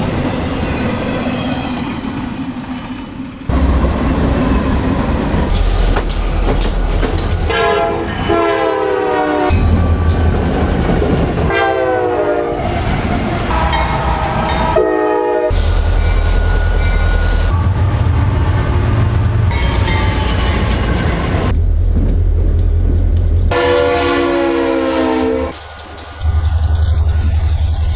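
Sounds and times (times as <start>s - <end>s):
train passing rumble: 0.0s - 27.9s
locomotive air horn: 7.4s - 9.7s, 11.5s - 12.7s, 13.5s - 15.8s, 23.5s - 25.8s.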